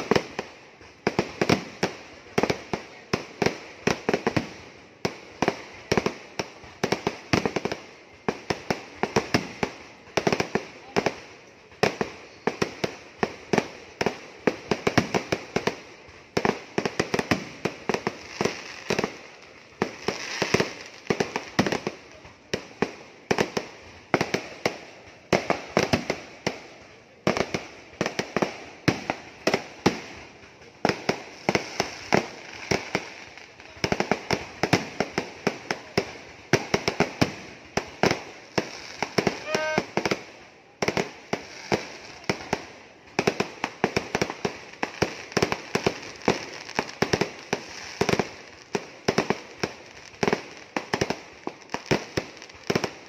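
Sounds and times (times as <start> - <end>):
firecracker bangs: 39.0 - 40.2.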